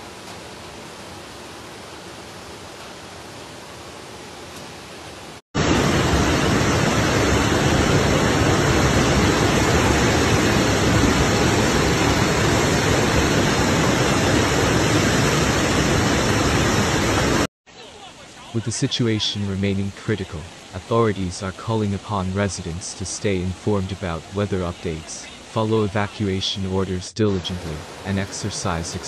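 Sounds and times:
floodwater rushing: 5.6s - 17.5s, 27.3s - 29.0s.

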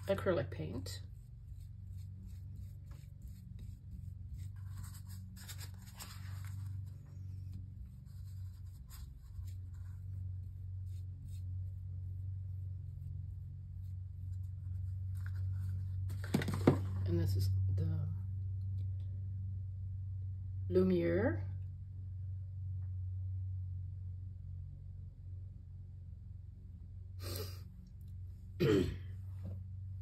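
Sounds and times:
paintbrush scratching on tile: 0.0s - 15.8s
steady low hum: 0.0s - 30.0s.

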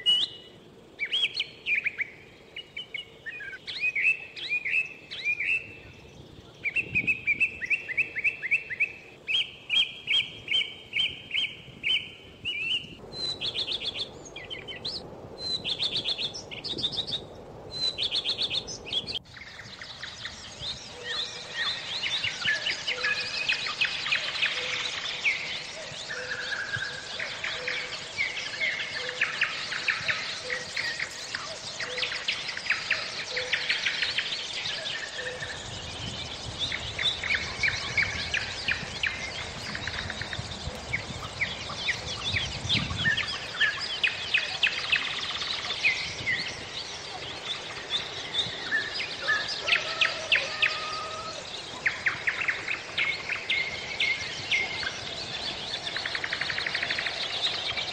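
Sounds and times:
songbirds singing: 0.0s - 57.9s
low rumble: 13.0s - 22.0s, 35.4s - 43.8s.

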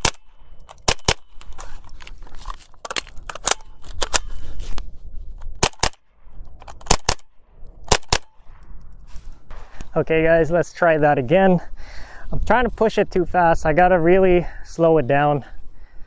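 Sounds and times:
rifle shots: 0.0s - 1.4s, 5.6s - 8.7s.

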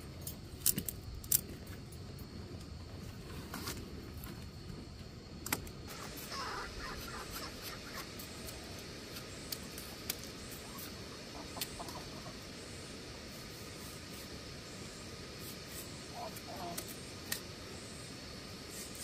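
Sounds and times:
poultry calling: 6.0s - 8.1s, 10.6s - 12.5s.

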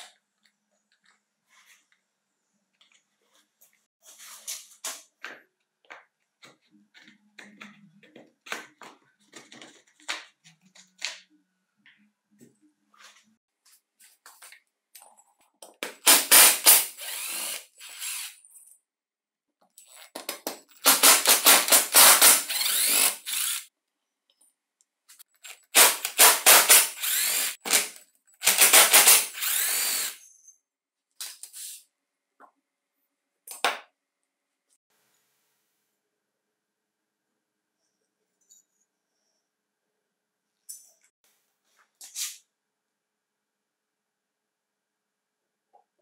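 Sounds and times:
cordless power driver spinning: 17.0s - 18.3s, 22.0s - 23.6s.

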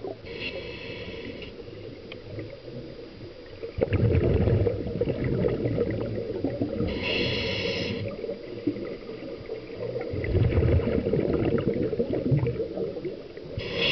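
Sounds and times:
regulator hissing inhalation: 0.3s - 1.8s, 6.9s - 8.2s, 13.6s - 13.9s
bubbling exhalation: 3.8s - 6.9s, 10.1s - 12.7s.

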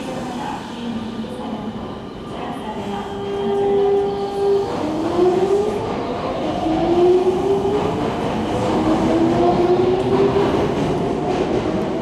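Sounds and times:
train wheels on rails: 2.8s - 12.0s.

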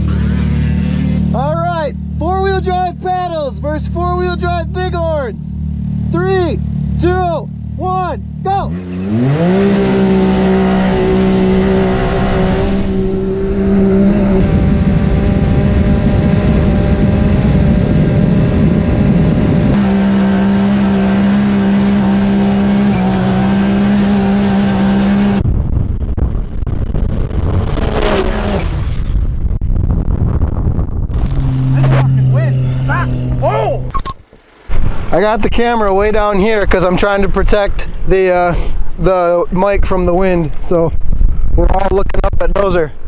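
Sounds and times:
engine revving at full throttle: 0.0s - 2.9s, 4.0s - 25.4s, 27.4s - 29.0s, 31.1s - 34.8s
off-road vehicles passing: 0.0s - 25.4s, 31.1s - 40.9s
wind: 0.0s - 43.0s.

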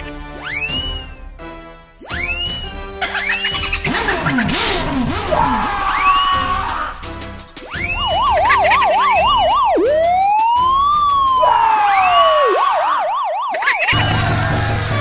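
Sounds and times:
electronic police siren: 7.6s - 14.6s.

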